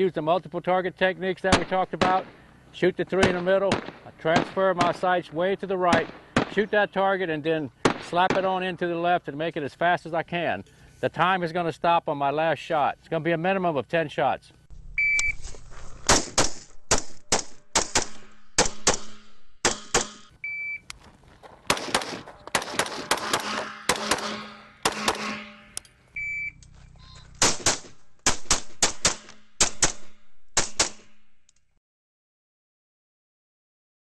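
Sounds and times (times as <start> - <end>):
rapid rifle shots: 3.2 - 5.1, 5.9 - 6.6, 7.8 - 8.5, 16.1 - 20.3, 21.7 - 25.4, 27.4 - 31.1
electronic shot timer beep: 15.0 - 15.4, 26.2 - 26.6.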